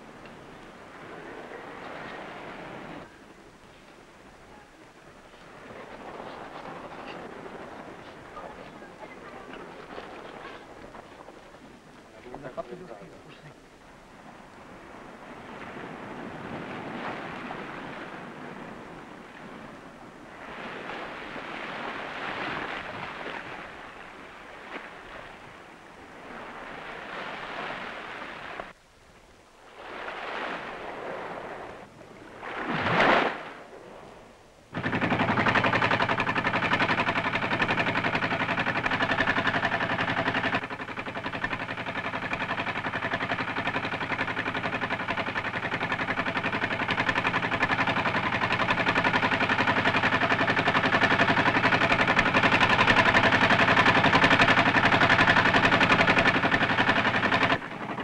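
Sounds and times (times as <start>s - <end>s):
boat engine putter: 0.0s - 19.7s, 34.7s - 58.0s
sea surf washing in: 14.1s - 28.8s, 29.6s - 58.0s.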